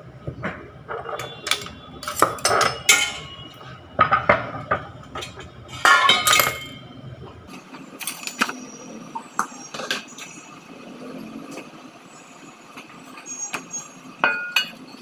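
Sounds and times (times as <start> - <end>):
steel kitchenware clinking: 0.9 - 7.2, 14.2 - 14.8.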